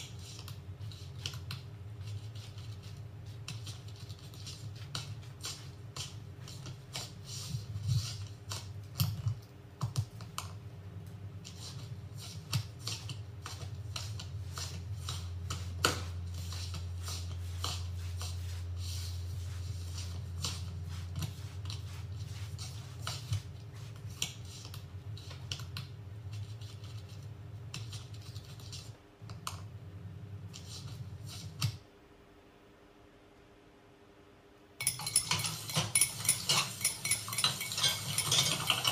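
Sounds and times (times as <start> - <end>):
low steady hum: 0.0 - 38.9.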